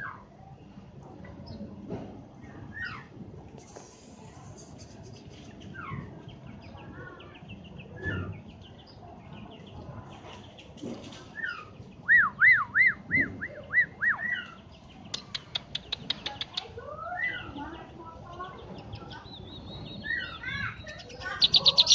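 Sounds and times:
bird whistled song notes: 0:11.4 - 0:15.2
sharp bird clicking notes: 0:15.1 - 0:16.7.

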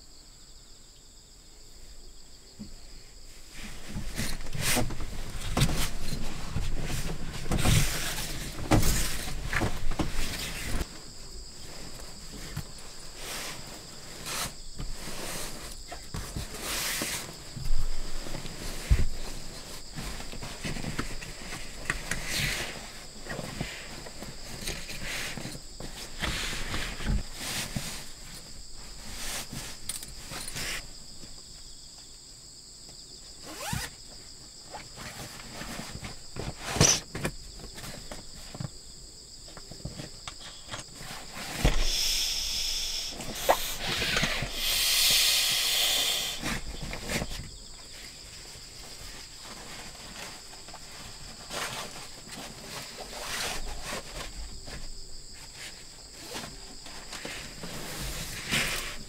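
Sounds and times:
insects trilling: 0:00.0 - 0:59.0
air hissing from sleeping pad: 0:03.0 - 0:31.0, 0:33.4 - 0:34.0, 0:40.4 - 0:54.4, 0:55.3 - 0:59.0
nylon fabric rustling: 0:33.5 - 0:33.9.

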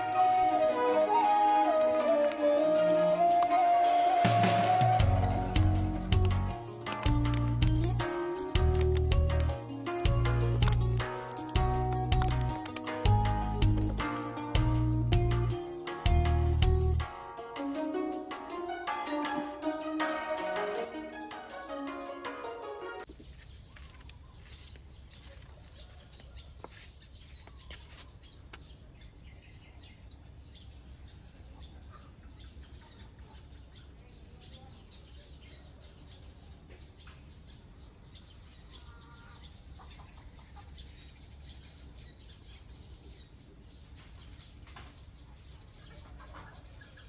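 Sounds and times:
birds chirping and calling: 0:23.1 - 0:47.0.

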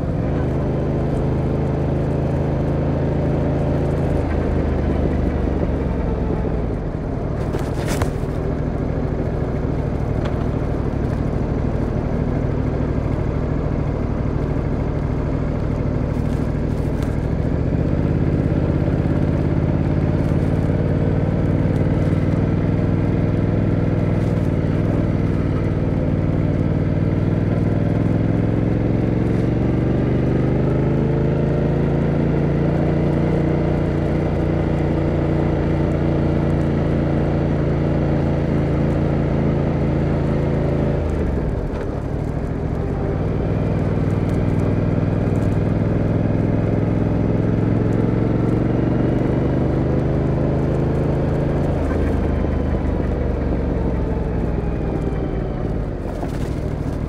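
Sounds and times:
motorcycle engine pulling: 0:00.4 - 0:31.1.

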